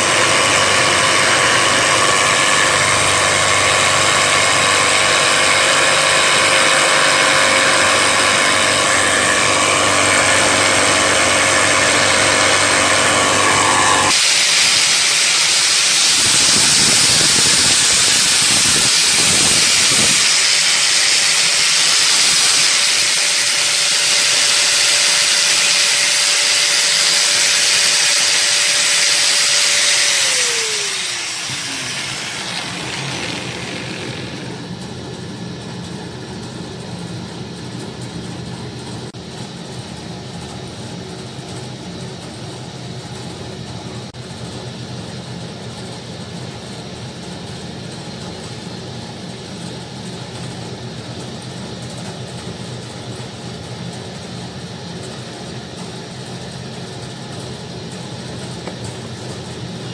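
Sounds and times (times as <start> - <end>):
router cutting wood: 0.0 - 34.7.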